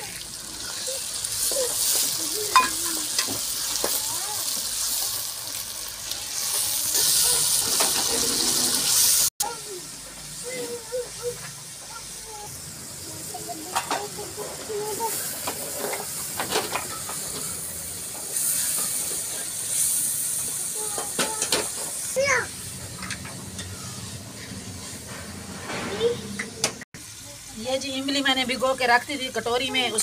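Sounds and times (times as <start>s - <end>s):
small children's voices: 0.0s - 8.6s, 9.4s - 24.6s, 25.7s - 27.6s
food sizzling in hot oil: 0.0s - 26.3s, 27.0s - 30.0s.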